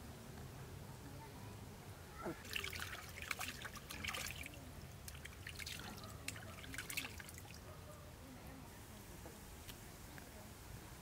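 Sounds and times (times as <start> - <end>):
water trickling and splashing: 2.1 - 7.8.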